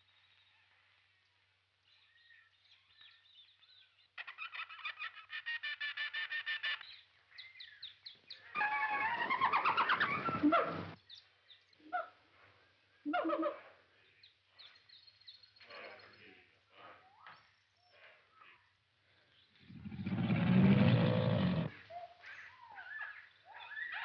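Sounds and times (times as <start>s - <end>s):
jungle bird calls: 2.0s - 12.2s, 13.1s - 16.2s, 19.4s - 24.0s
wild cat growling: 19.6s - 21.8s.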